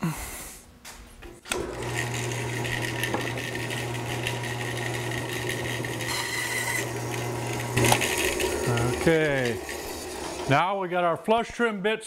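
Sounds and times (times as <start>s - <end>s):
bandsaw motor hum: 1.5s - 10.8s.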